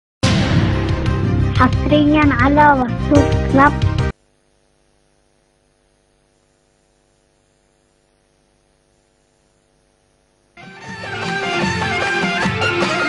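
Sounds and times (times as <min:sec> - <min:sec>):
band music: 0:00.2 - 0:04.1, 0:10.6 - 0:13.0
mains hum with hiss: 0:04.1 - 0:12.0.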